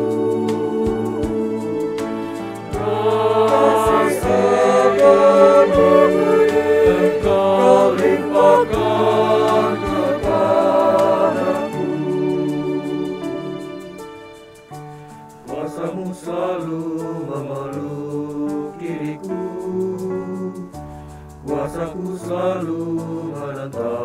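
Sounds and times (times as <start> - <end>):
mixed choir singing: 0.0 - 14.3, 15.4 - 20.6, 21.4 - 24.0
musical accompaniment: 0.0 - 24.0.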